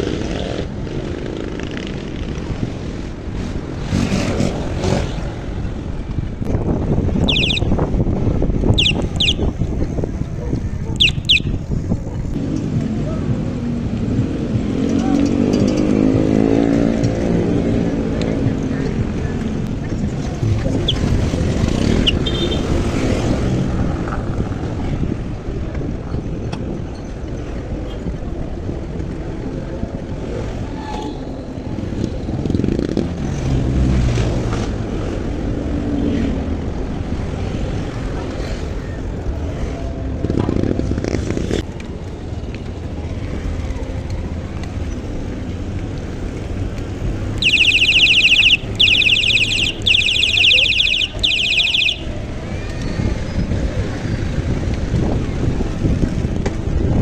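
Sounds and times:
wind rumbling on microphone: 0.0 - 47.5, 48.6 - 57.0
street traffic: 0.0 - 57.0
wind on microphone: 1.6 - 12.4, 52.0 - 57.0
voices: 7.2 - 7.7, 8.6 - 13.8, 46.0 - 54.4.

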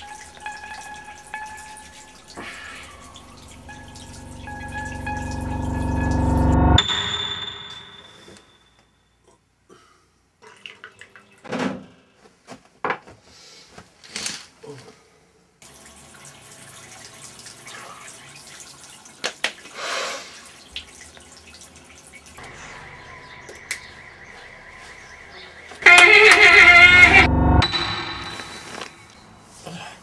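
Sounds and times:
tap water running into sink: 0.0 - 5.4, 15.6 - 22.4.

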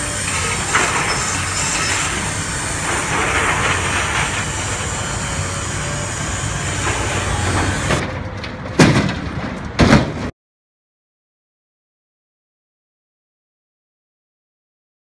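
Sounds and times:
excavator diesel engine under load: 0.0 - 9.8
debris clattering and crashing: 0.2 - 5.2.

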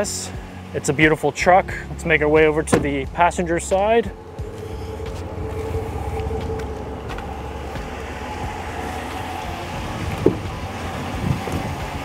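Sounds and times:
pickup engine idling: 0.0 - 12.0
faint hum: 3.1 - 10.7.

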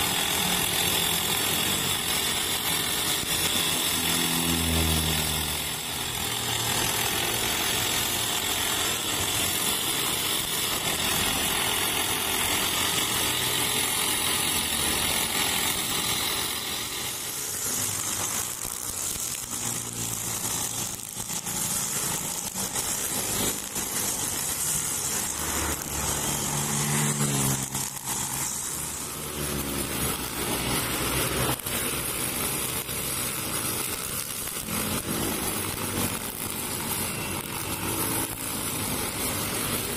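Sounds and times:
brush cutter running: 0.0 - 39.9
motorbikes passing: 3.4 - 5.8, 17.4 - 39.9.

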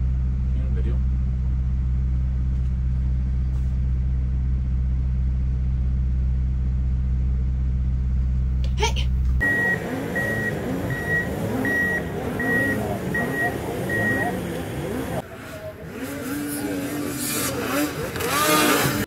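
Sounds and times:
low engine drone inside vehicle: 0.0 - 19.0
reversing alarm beeping: 9.4 - 14.5.

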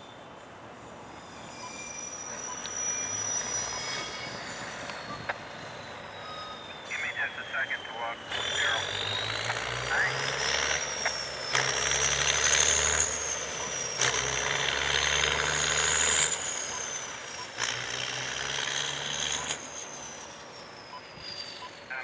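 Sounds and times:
freight train rumbling: 0.0 - 22.0
high whine: 0.0 - 22.0.

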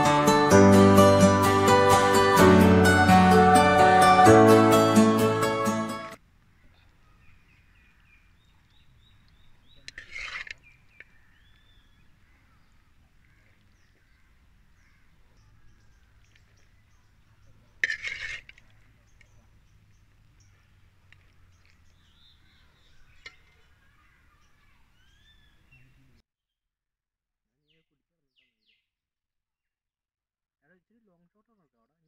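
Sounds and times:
faint birds chirping: 6.4 - 17.8, 18.5 - 26.2.

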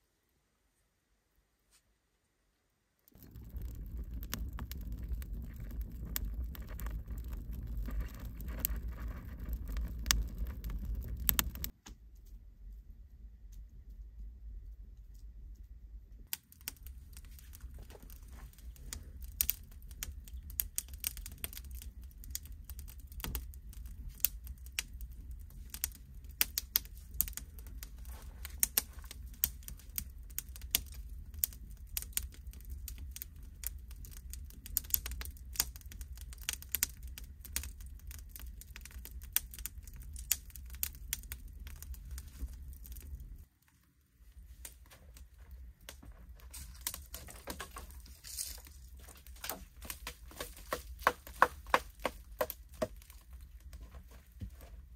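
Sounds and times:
sharp crackles and clicks: 3.1 - 12.4, 13.5 - 54.9
steady low rumble: 3.2 - 36.2.

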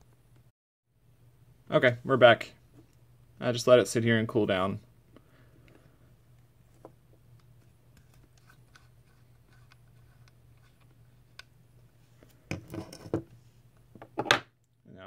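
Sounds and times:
steady low hum: 0.0 - 15.0
faint clicks and handling noise: 5.1 - 14.8.

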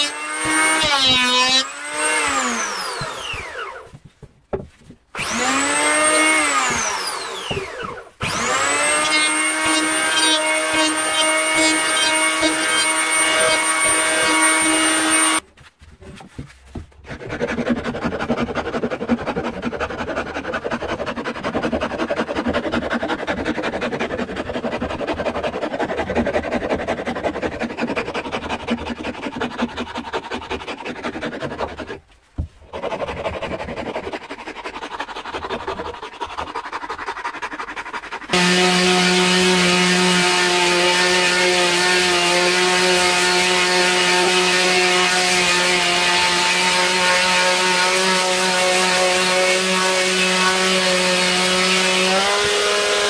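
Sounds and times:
electric planer motor whine: 0.0 - 3.9, 5.2 - 15.4, 38.3 - 53.0
rasp scraping wood: 0.0 - 53.0.

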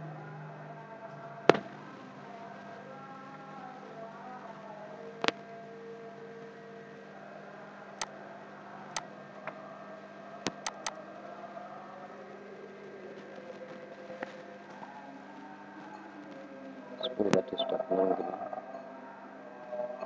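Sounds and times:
low hum and hiss: 0.0 - 19.6
computer mouse clicks: 10.5 - 10.9.

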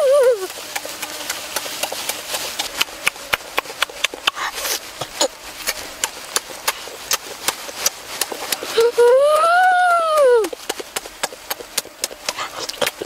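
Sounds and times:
person humming: 0.0 - 0.6, 8.5 - 10.7, 12.2 - 13.0
person chewing and lip-smacking: 0.1 - 13.0.

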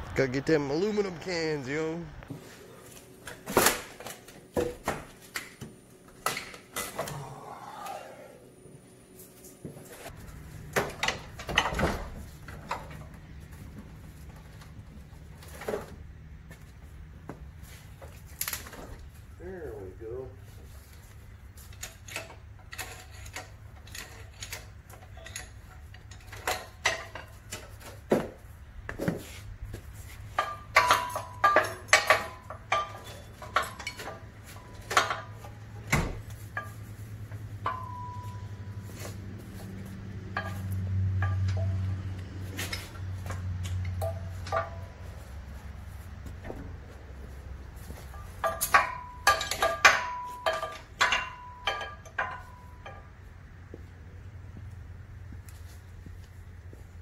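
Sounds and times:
metallic clanks of hoist chain: 21.7 - 27.4, 30.4 - 35.6, 48.1 - 53.1.

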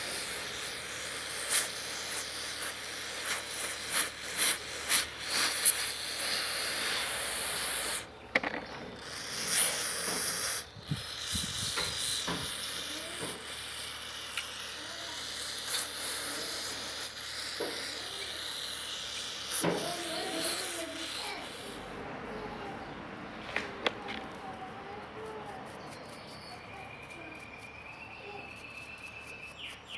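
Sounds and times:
aerosol spray hissing: 0.0 - 8.2, 8.9 - 22.7.

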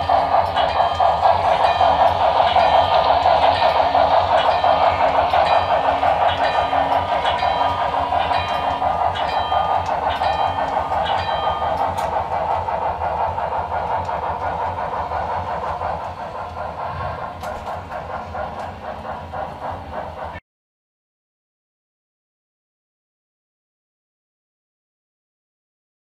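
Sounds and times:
crossing bell dinging: 0.0 - 12.4
model steam locomotive sound: 0.0 - 20.4
wheels clicking over track: 0.0 - 20.4.

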